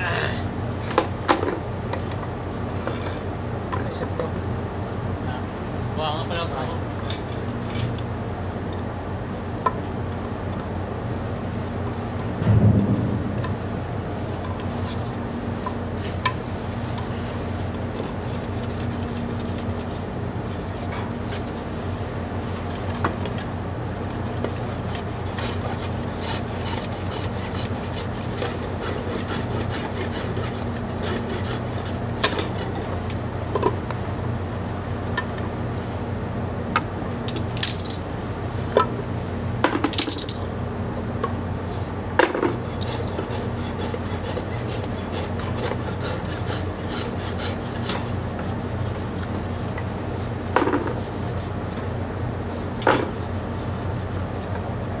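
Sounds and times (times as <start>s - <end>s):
low machinery hum: 0.0s - 55.0s
hacksaw sawing wood: 24.2s - 32.0s, 42.5s - 49.1s.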